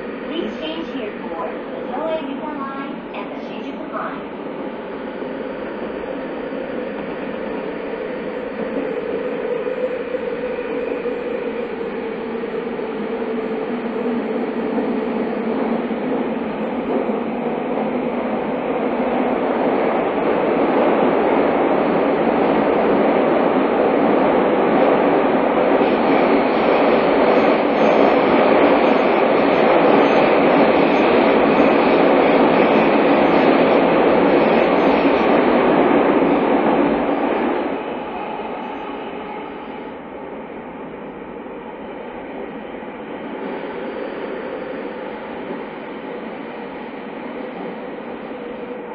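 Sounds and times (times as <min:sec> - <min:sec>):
train rumbling in tunnel: 0:00.0 - 0:48.9.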